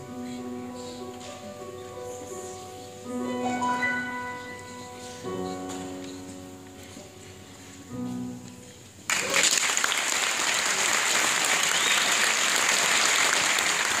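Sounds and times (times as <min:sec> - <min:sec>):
piano note ringing: 0:03.1 - 0:08.7
audience applause: 0:09.1 - 0:14.0.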